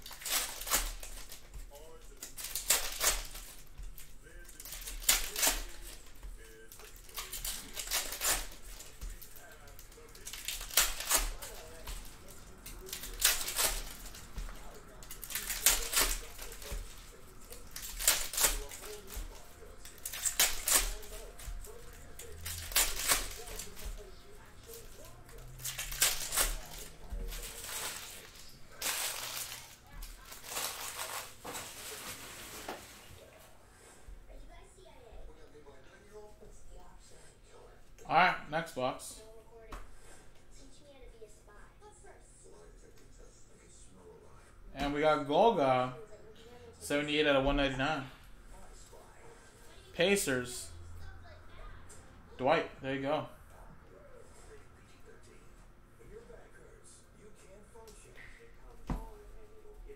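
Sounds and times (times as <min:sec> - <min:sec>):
cards being handled: 0:00.0 - 0:33.1
foil wrapper crinkling: 0:00.0 - 0:33.3.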